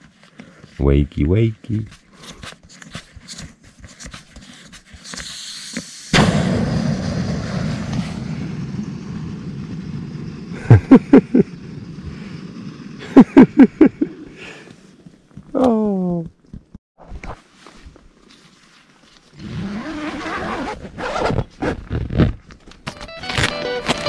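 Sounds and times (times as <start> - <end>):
air hissing out of valve: 5.0 - 6.2.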